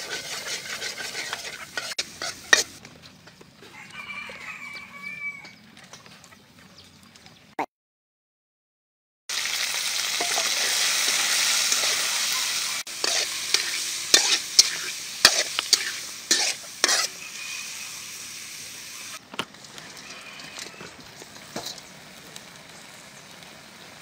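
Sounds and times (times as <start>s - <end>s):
food sizzling in hot oil: 0.0s - 2.8s, 9.3s - 24.0s
spatula scraping a wok: 0.0s - 2.8s, 10.1s - 22.0s.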